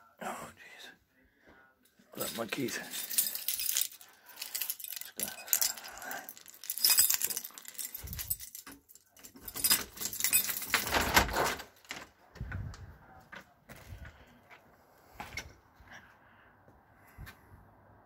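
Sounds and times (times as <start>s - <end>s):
keys jangling: 2.2s - 12.0s.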